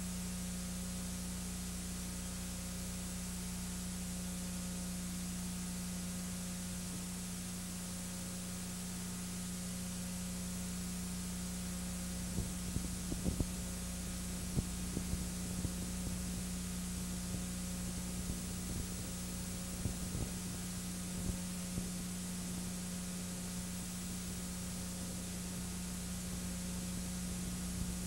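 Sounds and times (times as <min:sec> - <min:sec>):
low electrical hum: 0:00.0 - 0:28.0
steady hiss: 0:12.2 - 0:22.6.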